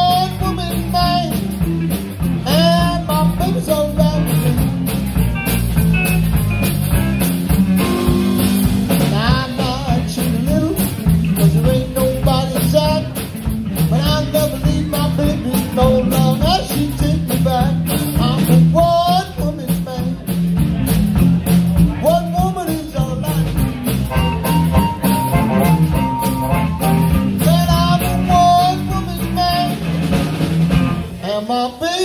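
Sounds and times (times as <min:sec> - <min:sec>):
blues band playing live: 0:00.0 - 0:32.0.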